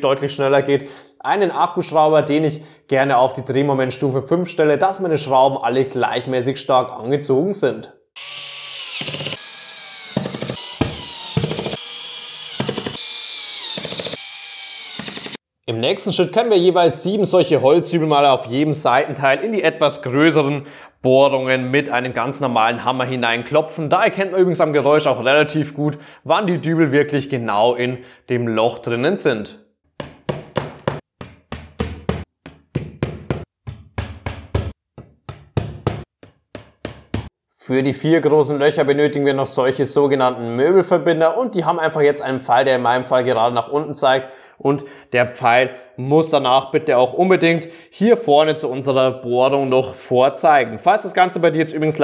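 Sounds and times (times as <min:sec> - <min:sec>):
cordless drill motor whining: 0:08.2 - 0:15.4
drill clutch clicking: 0:08.2 - 0:15.4
hammer knocking wooden dowels: 0:30.0 - 0:37.3.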